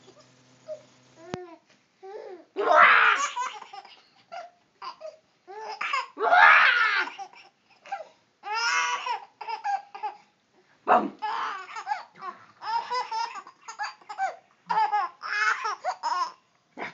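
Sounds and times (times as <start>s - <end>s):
baby giggling and laughing: 11.2s - 16.4s.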